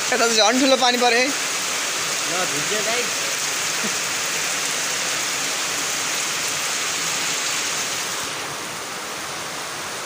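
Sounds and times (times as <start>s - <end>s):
heavy rain pouring: 0.0s - 10.0s.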